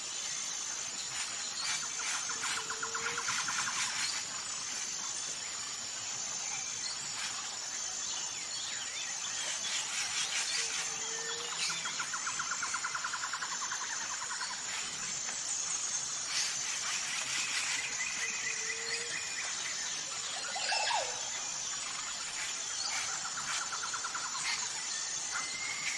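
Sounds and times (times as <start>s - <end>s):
high-pitched insect drone: 0.1s - 25.9s.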